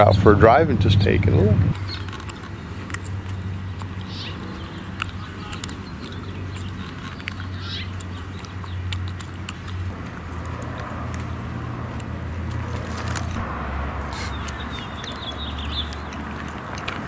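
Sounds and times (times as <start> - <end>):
high-pitched calls: 13.8 - 16.3.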